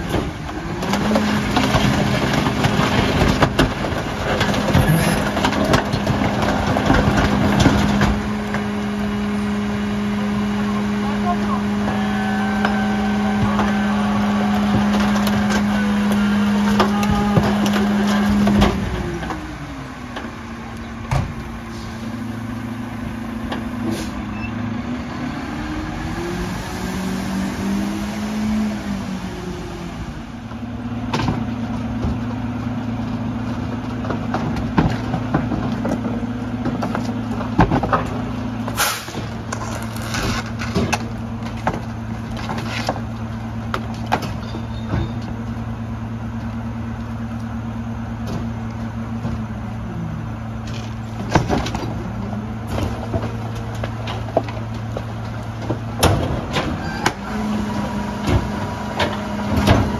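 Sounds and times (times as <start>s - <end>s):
items crushed with bangs and cracks: 0.0s - 8.6s, 33.5s - 45.4s, 50.6s - 57.2s
truck engine humming: 0.0s - 59.9s.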